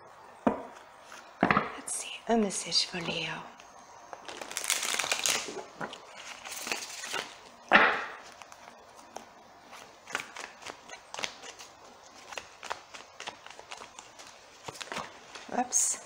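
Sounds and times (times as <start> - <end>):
cards rustling while shuffled: 4.2 - 7.5, 8.2 - 15.8.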